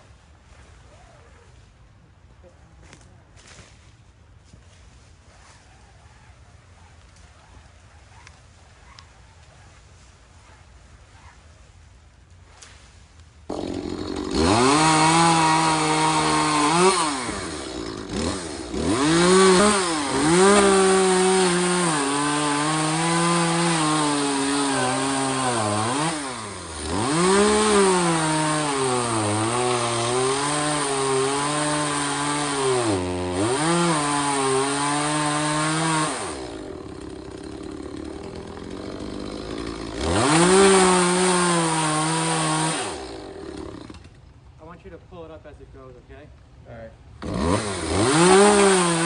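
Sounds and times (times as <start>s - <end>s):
chainsaw cutting tree trunk: 13.5s - 44.4s, 47.2s - 49.0s.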